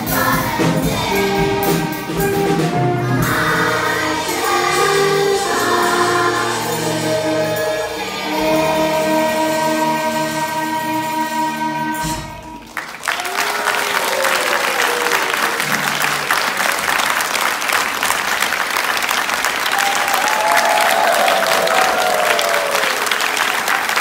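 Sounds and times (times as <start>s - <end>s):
audience applause: 12.7s - 24.0s.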